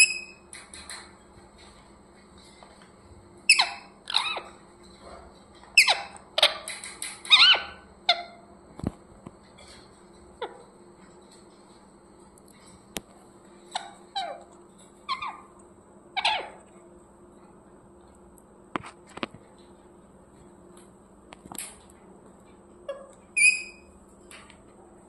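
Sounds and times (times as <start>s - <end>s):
parakeet squawks and chirps: 3.5s - 4.6s, 5.7s - 8.5s, 13.7s - 15.6s, 16.2s - 16.6s, 22.9s - 23.9s.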